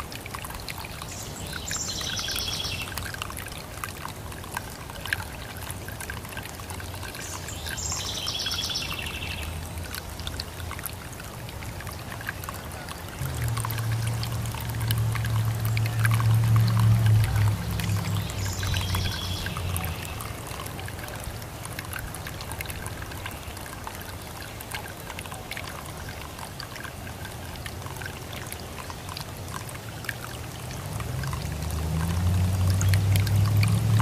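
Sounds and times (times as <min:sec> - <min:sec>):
fountain water trickling: 0:00.0 - 0:34.0
low steady hum: 0:08.9 - 0:26.4.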